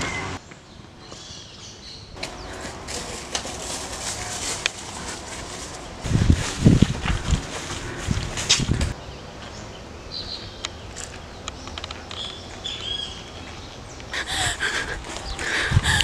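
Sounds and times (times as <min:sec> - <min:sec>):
birds chirping: 0:00.0 - 0:02.9, 0:04.2 - 0:16.0
running footsteps on path: 0:06.1 - 0:09.0
loud rough breathing: 0:14.1 - 0:16.0.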